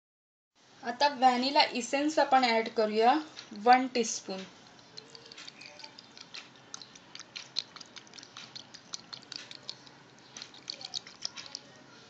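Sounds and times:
spoon stirring sticky mixture: 0:04.1 - 0:12.0.

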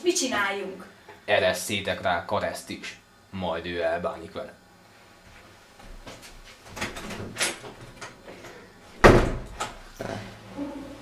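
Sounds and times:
heavy thump: 0:09.0 - 0:09.5.

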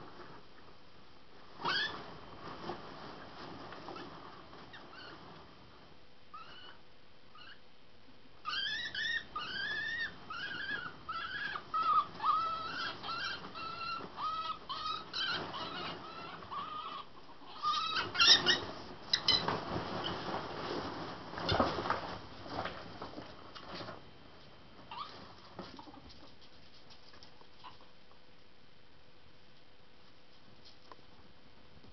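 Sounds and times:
ferrets squeaking: 0:08.4 - 0:20.2.

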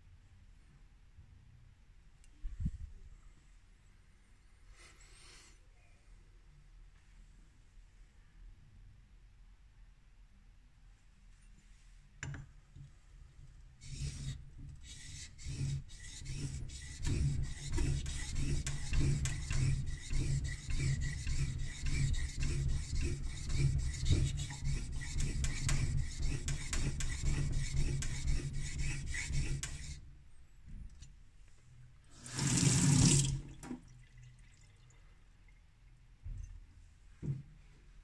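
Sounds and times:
blade scraping on sharpening plate: 0:14.9 - 0:30.0.

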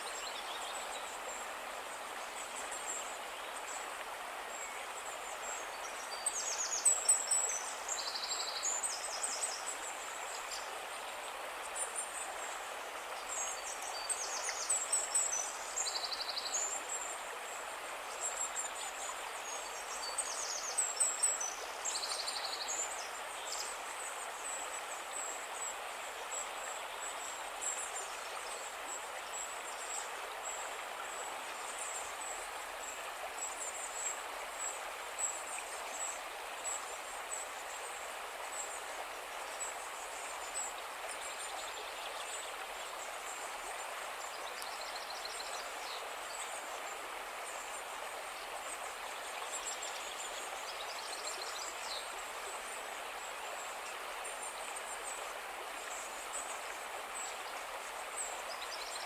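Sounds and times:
stream flowing over stones: 0:00.0 - 0:59.0
songbird chirping: 0:18.1 - 0:59.0.

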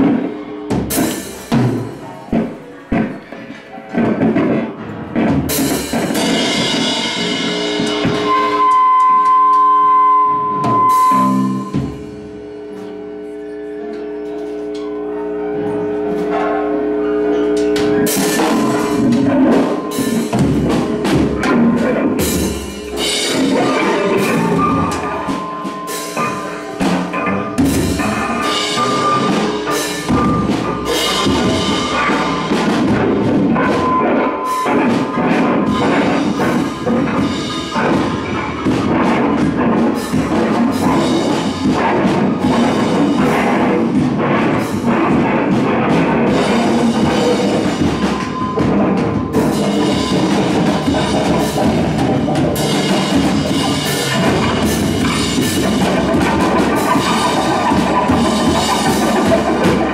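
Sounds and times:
droning notes: 0:00.0 - 0:03.5, 0:04.8 - 0:59.9
distorted guitar and bass: 0:00.0 - 0:59.9
heavy drum hits: 0:03.9 - 0:08.6, 0:17.7 - 0:59.9
high steady tone: 0:06.9 - 0:38.9.

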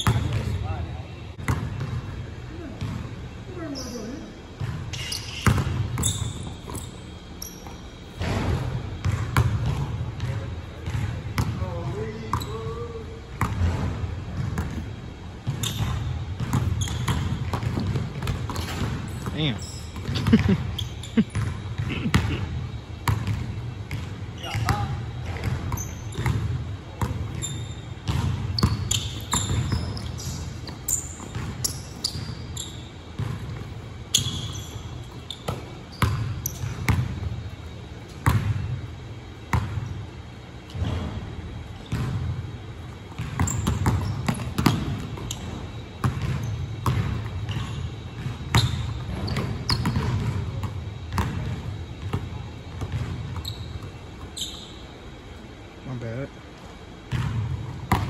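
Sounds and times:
sneaker squeaks: 0:00.0 - 0:22.4, 0:23.0 - 0:38.6, 0:39.5 - 0:55.1
basketball bouncing on wooden floor: 0:15.4 - 0:19.4, 0:23.0 - 0:32.4, 0:33.2 - 0:34.5, 0:41.8 - 0:42.4, 0:43.1 - 0:53.9, 0:57.1 - 0:58.0.

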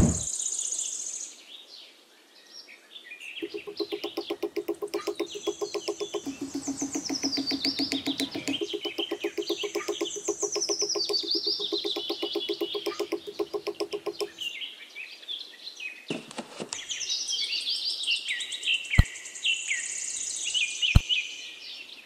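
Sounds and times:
fast low pulsing call: 0:03.4 - 0:14.4
sharp clicks: 0:03.4 - 0:14.4
birds chirping and twittering: 0:03.4 - 0:14.7.

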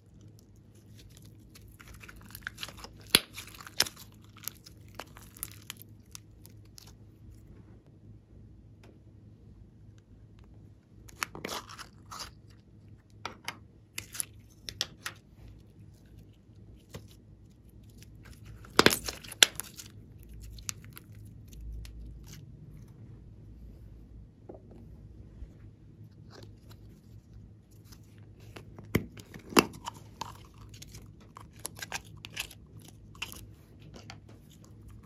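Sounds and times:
hands working soft clay: 0:00.0 - 0:07.9.

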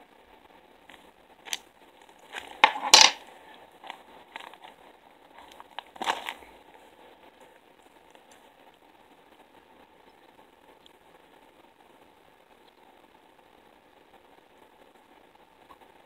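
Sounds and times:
plastic bag crinkling: 0:05.4 - 0:06.4.

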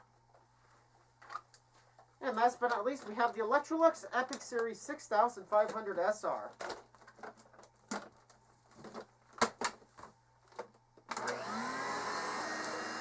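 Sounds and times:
vacuum cleaner running: 0:11.1 - 0:13.0.

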